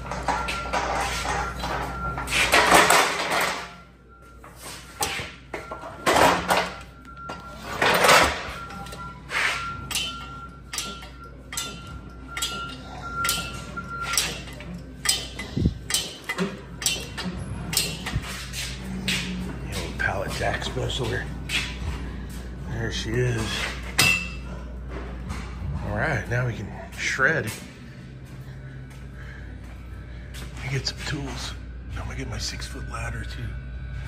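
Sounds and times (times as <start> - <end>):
pallet jack clanking rattling: 0.0 - 3.8.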